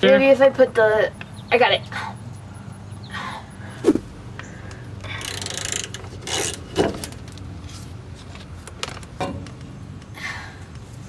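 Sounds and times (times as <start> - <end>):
ratchet wrench clicking: 5.0 - 7.4.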